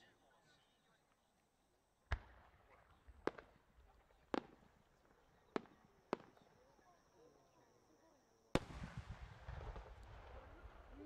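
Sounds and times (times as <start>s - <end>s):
distant fireworks cracks: 2.1s - 6.5s, 8.6s - 11.0s.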